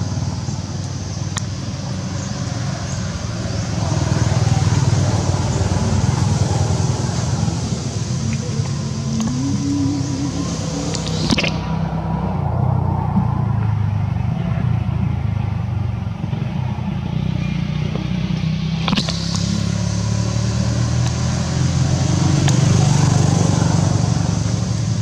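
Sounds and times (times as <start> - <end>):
engine running steadily: 0.0 - 25.0
sharp click: 18.8 - 19.5.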